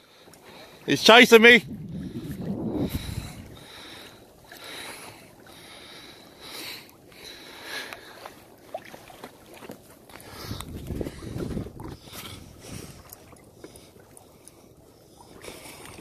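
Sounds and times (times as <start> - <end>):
water lapping against kayak hull: 0.0 - 16.0
hard panicked breathing: 1.9 - 8.3.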